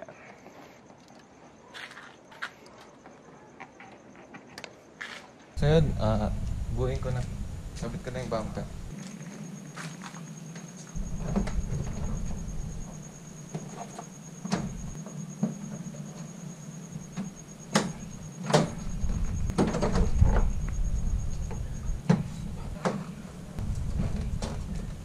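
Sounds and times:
thin steady high tone: 5.6 - 19.6.

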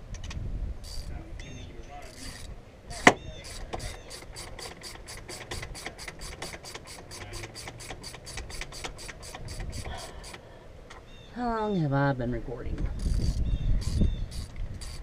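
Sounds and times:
ratchet wrench clicking: 0.8 - 10.4, 13.0 - 15.0.

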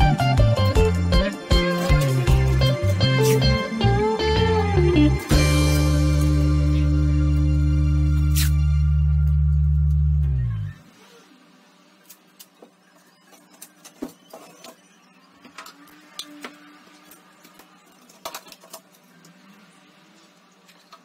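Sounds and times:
background music: 0.0 - 10.8.

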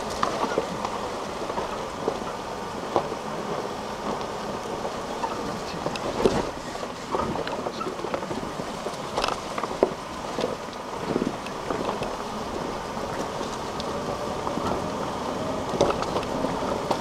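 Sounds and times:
vehicle engine and tyres: 0.0 - 17.0
body and load rattling: 5.1 - 12.2.

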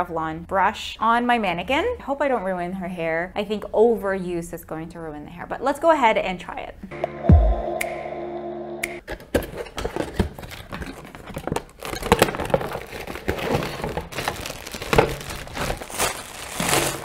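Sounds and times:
cardboard packaging rustling: 9.4 - 17.0
plastic bag crinkling: 10.0 - 17.0.

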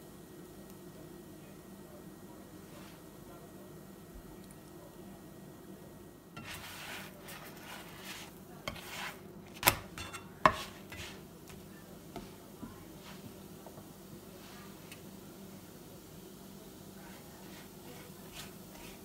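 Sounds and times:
spatula scraping frying pan: 6.4 - 12.4, 17.1 - 19.0
spatula knocking against pan: 10.0 - 10.8.

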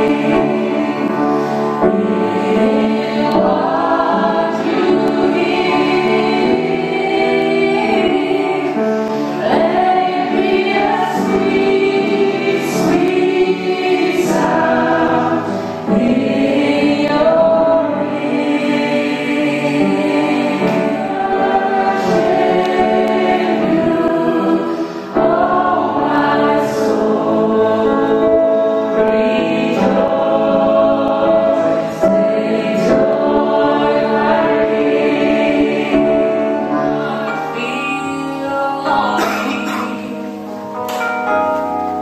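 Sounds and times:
woman singing through loudspeakers: 37.0 - 40.3.

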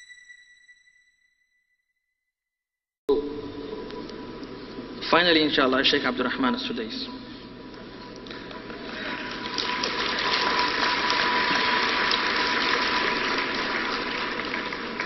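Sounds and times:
large audience applauding: 8.8 - 15.0.

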